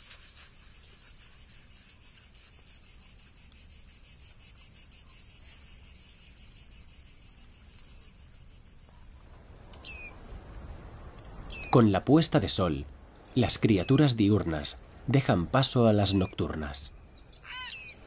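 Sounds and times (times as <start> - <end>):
insect trilling: 0.0 - 9.2.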